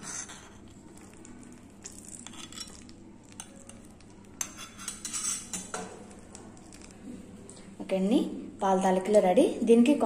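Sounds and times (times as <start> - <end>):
steel spoon scraping a pan: 2.2 - 2.9, 4.4 - 5.7.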